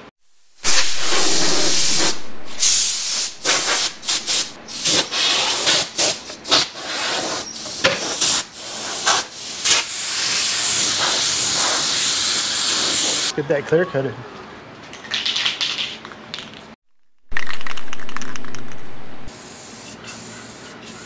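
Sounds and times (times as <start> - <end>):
compressed air blow gun hissing: 0.6 - 7.4, 8.0 - 13.3.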